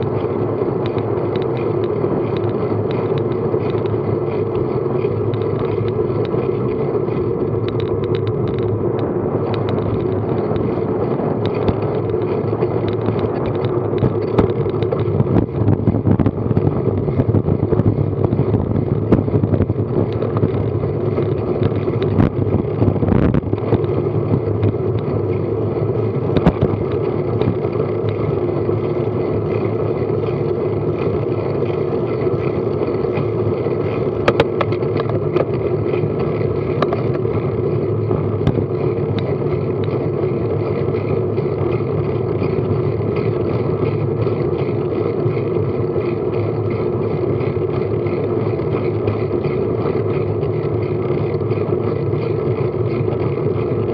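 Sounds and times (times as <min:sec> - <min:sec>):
bicycle tyres rolling on tarmac: 0:00.0 - 0:53.9
wind over microphone: 0:00.0 - 0:53.9.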